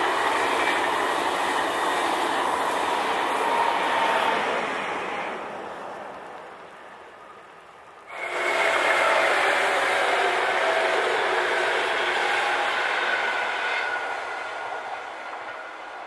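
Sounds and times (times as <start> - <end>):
locomotive passing with rail noise: 0.0 - 16.0
passenger train on rails: 0.0 - 16.0
steady whining tones: 8.0 - 16.0.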